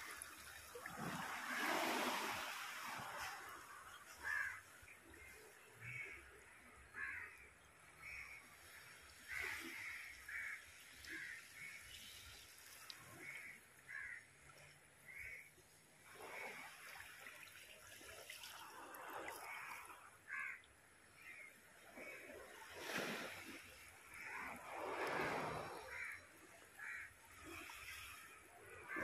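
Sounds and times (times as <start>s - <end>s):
faint surf washing on shore: 0.0s - 4.6s, 21.9s - 29.0s
crows cawing: 4.2s - 4.6s, 6.9s - 7.4s, 9.3s - 11.5s, 13.2s - 14.2s, 20.3s - 21.5s, 25.9s - 26.2s, 26.8s - 27.1s.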